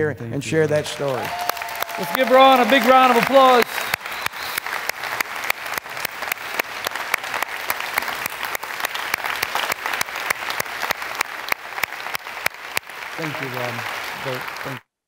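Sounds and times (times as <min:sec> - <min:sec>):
crowd applauding: 0:00.6 - 0:14.8.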